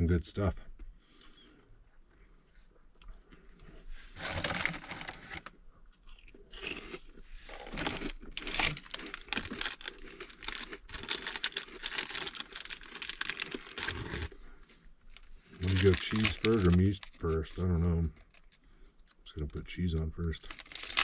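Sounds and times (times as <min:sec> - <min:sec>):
plastic packaging crinkling: 0:04.2 - 0:05.5, 0:07.5 - 0:14.4, 0:15.1 - 0:19.2, 0:20.2 - 0:21.0.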